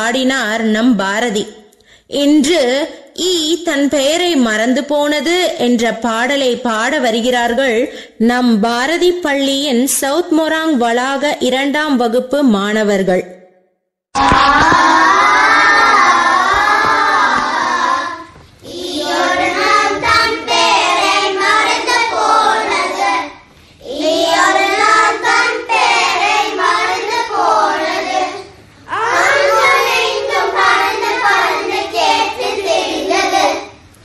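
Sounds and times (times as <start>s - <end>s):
children singing together: 14.2s - 33.8s.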